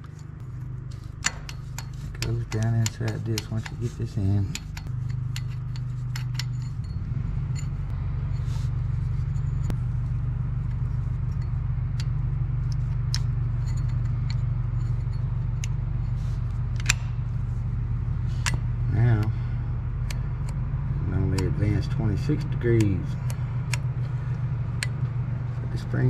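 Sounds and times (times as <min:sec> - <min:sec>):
low machine hum: 0:00.0 - 0:26.0
small metallic clicks: 0:00.9 - 0:07.0, 0:16.7 - 0:17.2.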